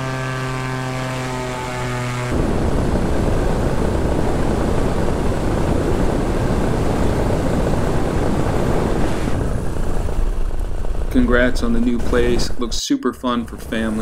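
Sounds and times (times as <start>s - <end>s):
engine and propeller drone: 0.0s - 14.0s
wind buffeting microphone: 2.3s - 12.8s.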